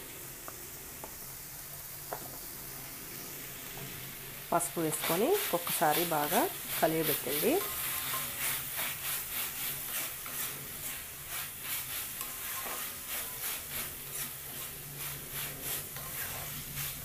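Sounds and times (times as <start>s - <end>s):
oil sizzling: 0.0s - 17.0s
spatula scraping metal pan: 5.0s - 17.0s.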